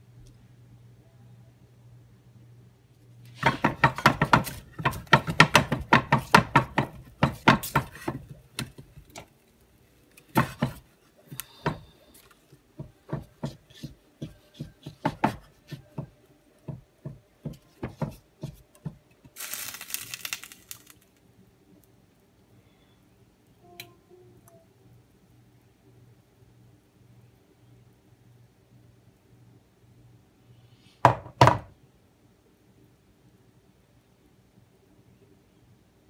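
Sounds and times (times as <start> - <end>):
margarine knocking in frying pan: 3.4 - 8.8
wrapper crinkling: 19.4 - 21.2.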